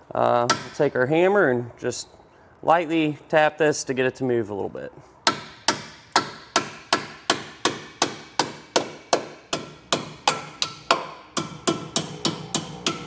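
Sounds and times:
hammer tapping steel: 0:00.5 - 0:00.9, 0:05.3 - 0:13.0.

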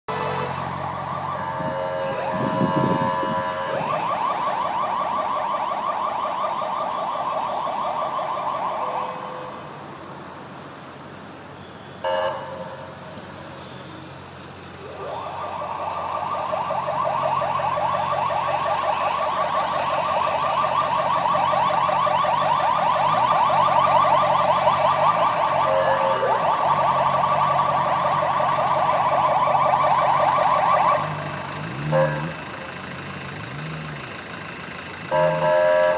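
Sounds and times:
car alarm warbling: 0:00.1 - 0:09.7, 0:11.6 - 0:13.8, 0:14.8 - 0:32.7, 0:35.1 - 0:35.9.

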